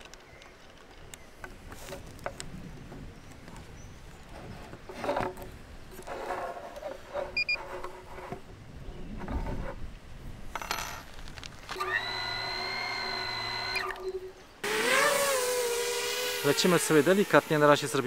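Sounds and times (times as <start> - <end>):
drone motors idle whine: 11.8 - 14.3.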